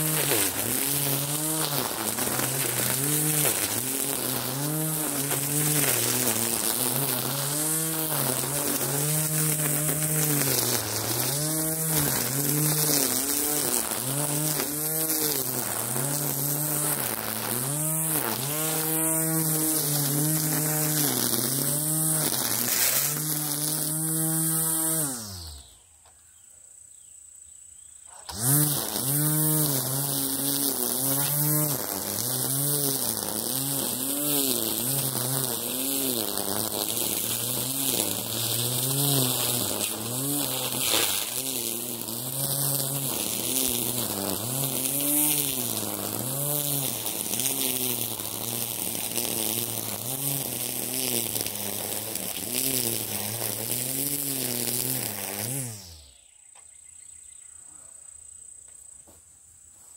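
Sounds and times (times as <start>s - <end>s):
string trimmer buzzing: 0.0s - 25.8s, 28.1s - 56.3s.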